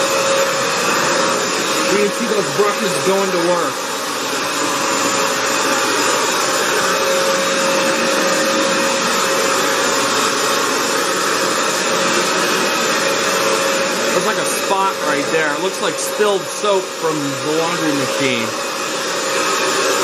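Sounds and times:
floor cleaner motor whine: 0:00.0 - 0:20.0.

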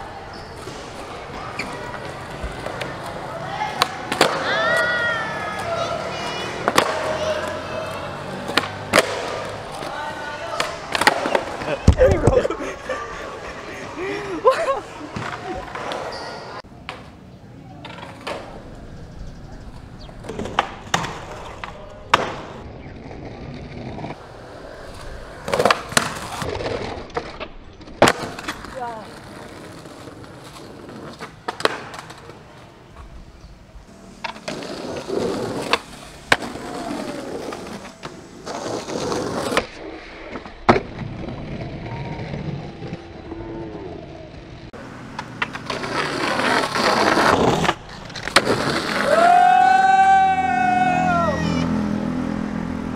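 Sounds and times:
skateboard wheels rolling on concrete: 0:00.0 - 0:52.9
onlookers cheering: 0:03.3 - 0:08.2, 0:48.9 - 0:52.1
skateboard clacks: 0:06.4 - 0:12.5, 0:45.0 - 0:50.0
skateboard scraping on ledge: 0:33.9 - 0:43.0, 0:44.8 - 0:49.5.

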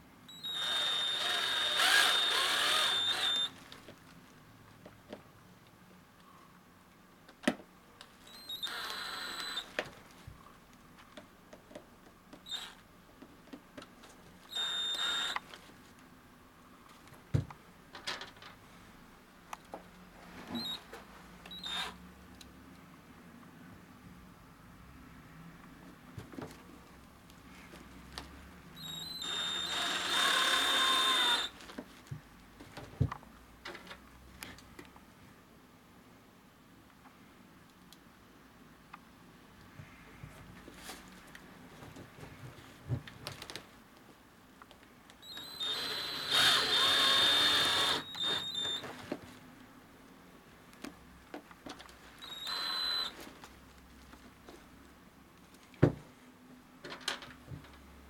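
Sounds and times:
cordless drill whining: 0:00.3 - 0:03.6, 0:08.3 - 0:09.8, 0:12.4 - 0:12.8, 0:14.4 - 0:15.5, 0:20.6 - 0:20.8, 0:21.5 - 0:22.0, 0:28.8 - 0:31.6, 0:45.2 - 0:48.9, 0:52.2 - 0:53.2.

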